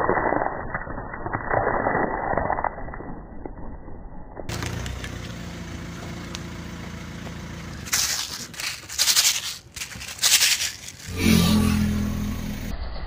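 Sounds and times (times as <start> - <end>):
stiff plastic crackling: 7.8 - 11.2.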